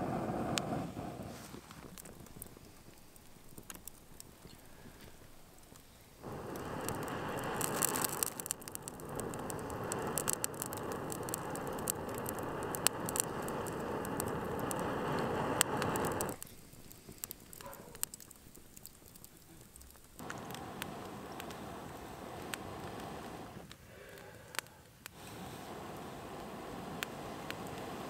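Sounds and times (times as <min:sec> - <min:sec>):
air rushing through blow poker: 0:00.0 - 0:03.0, 0:06.2 - 0:16.4, 0:20.2 - 0:28.0
burning wood crackling and popping: 0:00.0 - 0:28.0.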